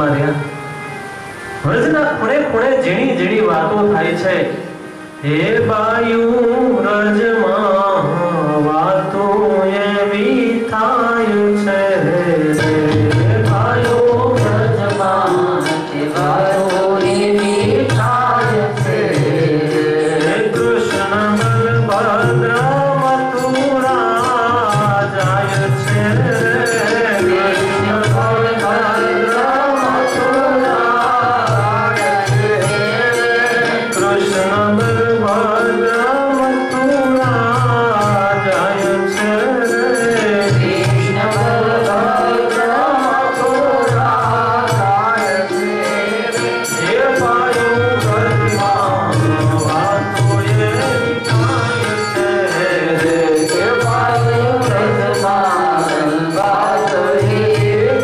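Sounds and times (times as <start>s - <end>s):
melodic instrumental accompaniment: 0.0s - 6.2s, 10.2s - 58.0s
man singing: 1.6s - 58.0s
hand drum rhythm: 12.2s - 58.0s.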